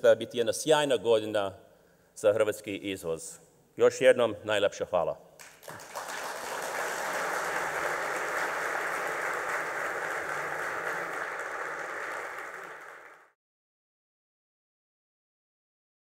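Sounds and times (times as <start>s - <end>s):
audience applauding: 5.4s - 13.4s.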